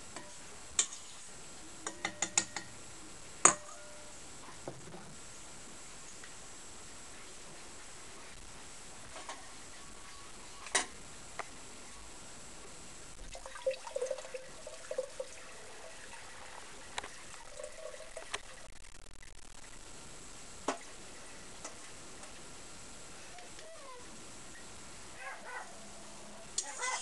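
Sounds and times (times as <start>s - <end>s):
liquid trickling through a sieve: 13.3s - 18.7s.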